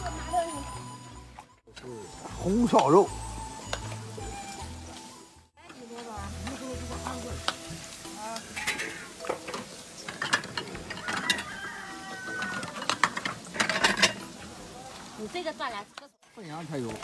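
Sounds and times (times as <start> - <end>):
ladle scraping metal basin: 8.5 - 14.3.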